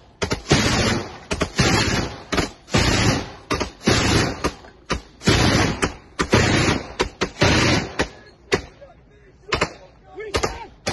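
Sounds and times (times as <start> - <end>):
autocannon firing bursts: 0.1 - 8.7.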